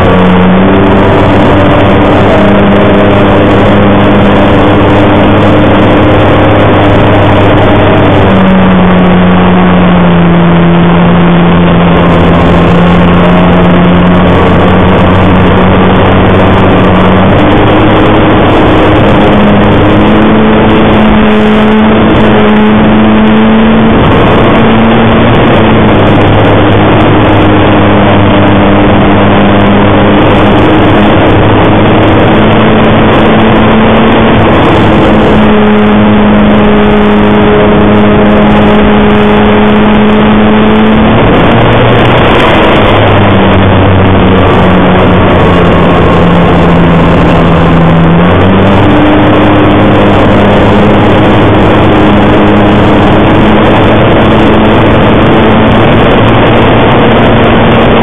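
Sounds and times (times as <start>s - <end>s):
model aircraft engine running: 0.0s - 58.0s
rushing air: 0.0s - 58.0s.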